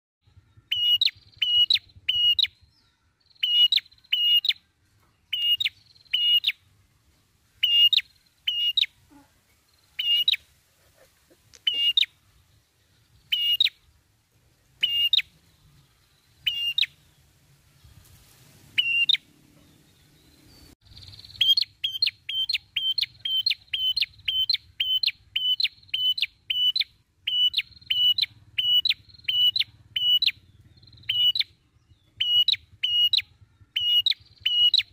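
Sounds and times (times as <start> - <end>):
bird calling in sharp notes: 0.3 - 4.6, 5.3 - 6.6, 7.6 - 9.3, 10.0 - 10.4, 11.5 - 12.2, 13.2 - 13.8, 14.8 - 15.3, 16.4 - 17.0, 20.9 - 34.9.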